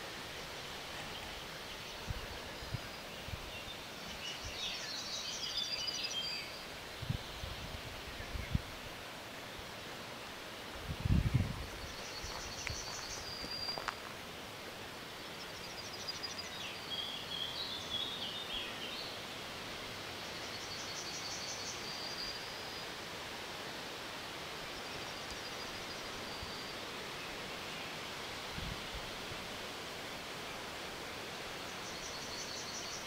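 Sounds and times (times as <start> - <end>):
steady background hiss: 0.0 - 33.0
bird chirping: 11.7 - 13.9.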